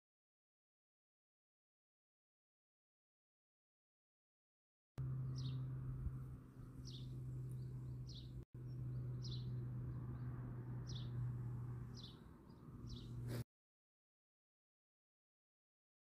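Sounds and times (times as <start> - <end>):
small bird calling: 11.9 - 13.4.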